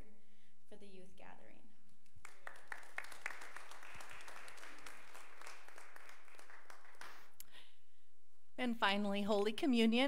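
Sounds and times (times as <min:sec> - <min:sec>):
crowd applauding: 0:02.2 - 0:07.4.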